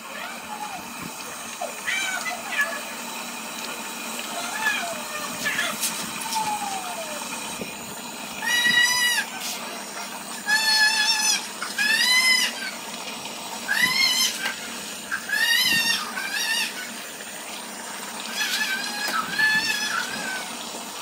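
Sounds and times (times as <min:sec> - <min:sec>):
animal high-pitched calls: 0:08.4 - 0:09.6, 0:10.4 - 0:12.8, 0:13.7 - 0:17.0, 0:18.3 - 0:20.5.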